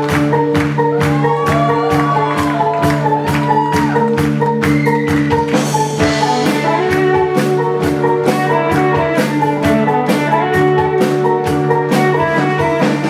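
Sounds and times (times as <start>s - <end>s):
drum kit beat: 0.0s - 13.0s
electric guitar: 0.0s - 13.0s.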